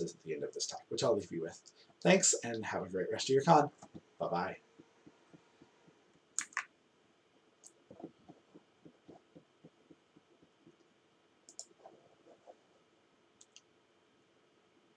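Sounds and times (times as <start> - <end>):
faint room hum: 0.0 - 14.9
soft low taps: 3.7 - 4.1, 7.6 - 10.9
computer mouse clicks: 6.4 - 6.7, 11.5 - 11.8, 13.4 - 13.7.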